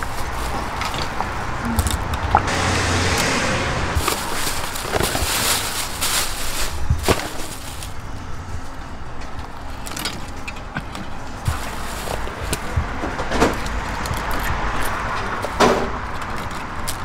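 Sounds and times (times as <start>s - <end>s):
plastic bag crinkling: 0.0s - 2.1s, 4.0s - 8.8s, 11.1s - 17.0s
wooden skewers clicking: 9.1s - 17.0s.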